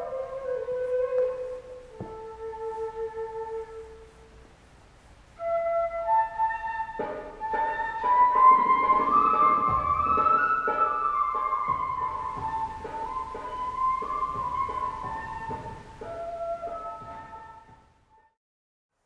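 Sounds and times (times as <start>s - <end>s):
slow flute melody: 0.0s - 4.4s, 5.3s - 18.4s
accompaniment with lower notes: 5.4s - 17.8s.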